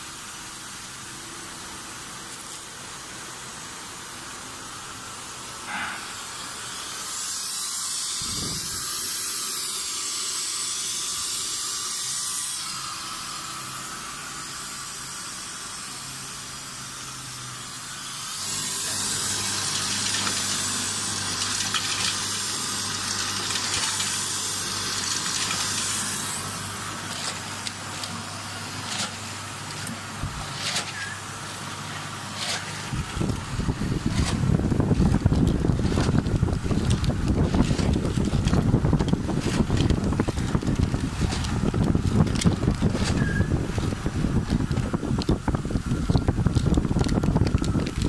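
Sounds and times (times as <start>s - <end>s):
packing machine hiss: 0.0s - 48.0s
low machine hum: 18.2s - 48.0s
sharp machine clacks: 18.4s - 26.5s.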